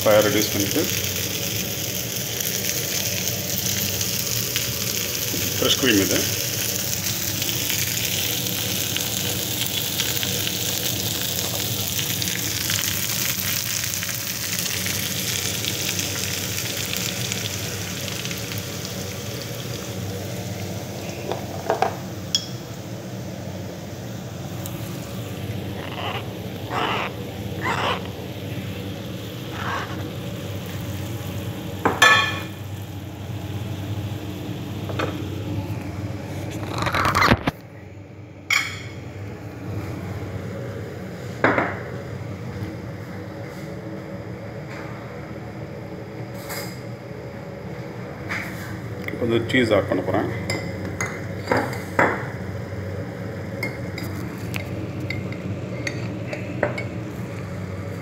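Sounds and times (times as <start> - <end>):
vegetables sizzling in oil: 0.0 - 36.1.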